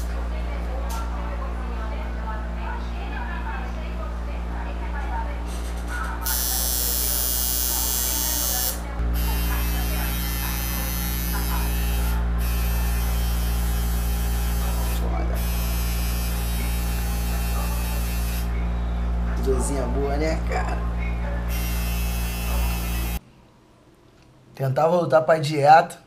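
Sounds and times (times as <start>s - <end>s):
tattoo machine buzzing: 6.2s - 18.6s, 21.5s - 23.2s.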